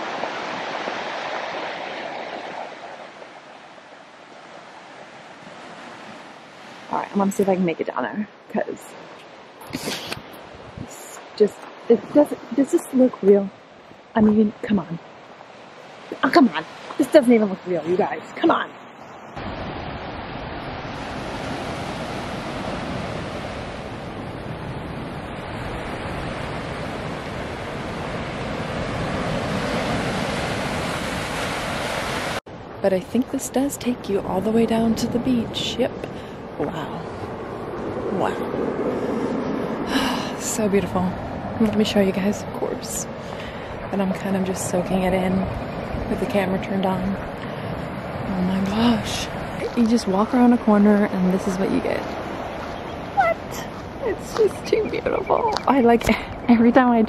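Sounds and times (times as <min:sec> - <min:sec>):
surf washing over pebbles: 0:00.0 - 0:03.7
surf on pebble beach: 0:00.0 - 0:07.8, 0:08.4 - 0:57.0.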